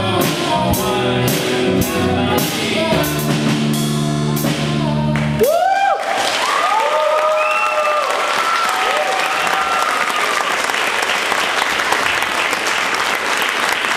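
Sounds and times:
audience applauding: 5.2s - 13.9s
high-pitched cheers: 5.4s - 10.8s.

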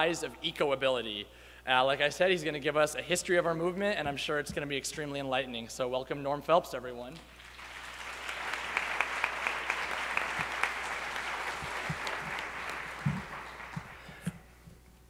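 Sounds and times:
audience applauding: 7.3s - 14.5s.

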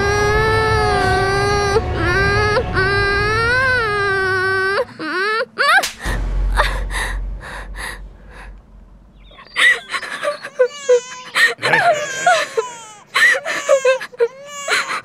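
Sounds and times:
low rumble: 0.0s - 4.8s, 5.8s - 10.3s
baby crying: 9.6s - 15.0s.

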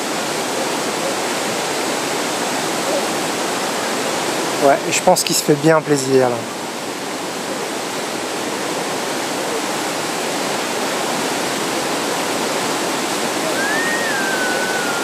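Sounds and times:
river rapids rushing over rocks: 0.0s - 15.0s
thin whistle-like tone: 13.4s - 15.0s.

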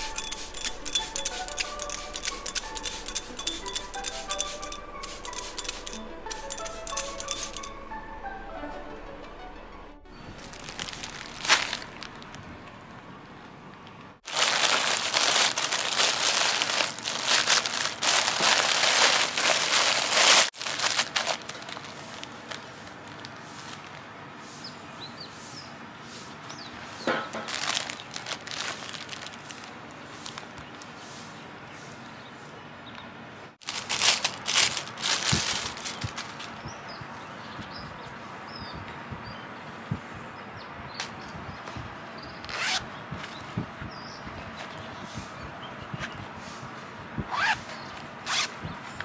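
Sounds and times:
plastic packaging crinkling: 0.0s - 7.7s, 10.3s - 12.5s, 14.2s - 24.1s, 27.3s - 30.9s, 33.6s - 36.6s.

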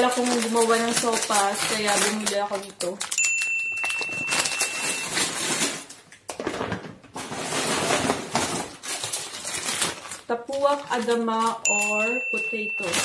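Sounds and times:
plastic bags rustling: 0.0s - 13.0s.

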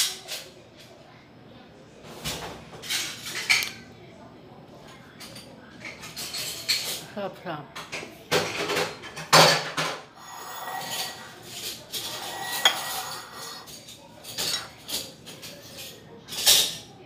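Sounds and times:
tableware clattering: 5.2s - 7.0s, 7.8s - 16.9s
sharp tableware clink: 10.3s - 13.7s.

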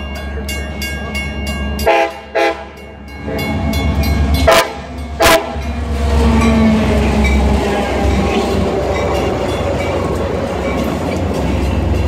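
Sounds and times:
locomotive engine and wheels passing: 0.0s - 12.0s
locomotive air horn blasts: 1.8s - 2.8s, 4.4s - 5.7s.

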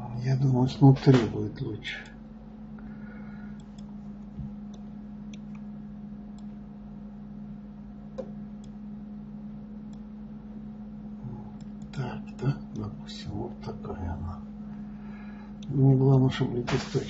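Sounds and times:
steady low hum: 0.0s - 17.0s
computer mouse clicks: 3.6s - 4.0s, 6.3s - 6.5s, 8.2s - 8.8s, 9.9s - 10.1s, 11.6s - 12.5s.

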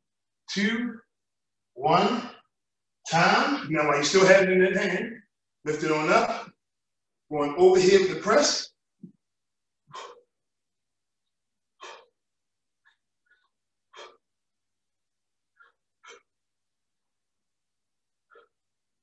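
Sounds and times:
man breathing out hard: 9.9s - 10.4s, 11.7s - 12.3s, 13.3s - 14.3s.

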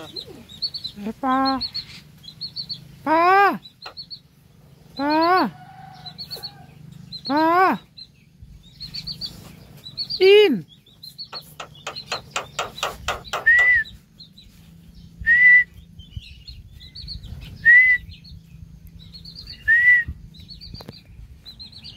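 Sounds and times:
small birds chirping faintly: 0.0s - 21.9s
myna harsh clicking notes: 11.3s - 13.8s.

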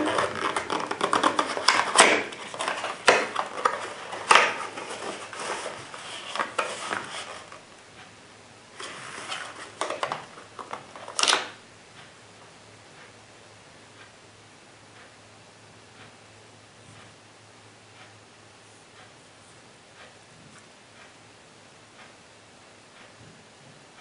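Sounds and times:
cardboard rustling and scraping: 0.0s - 7.6s, 8.8s - 11.2s.

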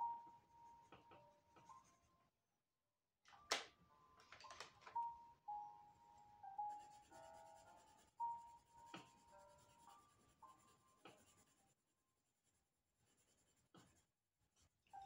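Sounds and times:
quiet background music: 0.0s - 2.4s, 3.3s - 14.0s
coloured pencil scratching on paper: 6.6s - 14.8s.

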